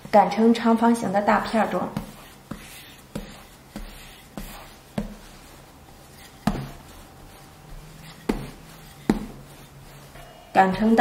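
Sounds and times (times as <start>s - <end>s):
rolling pin knocking on board: 6.4s - 6.8s, 8.3s - 9.5s.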